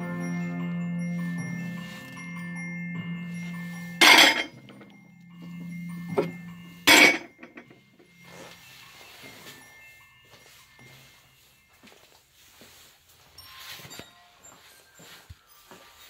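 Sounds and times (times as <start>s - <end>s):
porcelain plates clinking: 4.0s - 4.9s, 6.9s - 7.7s.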